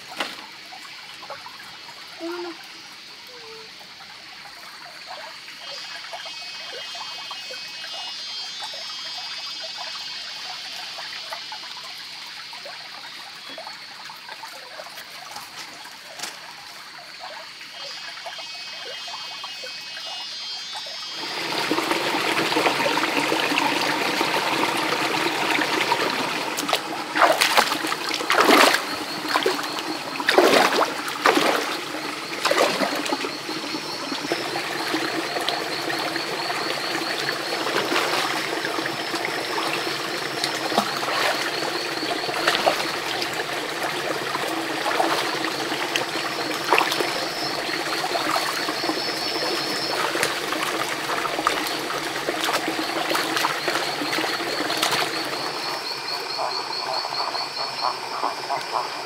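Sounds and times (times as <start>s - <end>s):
trickling stream water: 0.0s - 59.0s
feet splashing in stream: 24.2s - 35.8s, 36.4s - 55.7s.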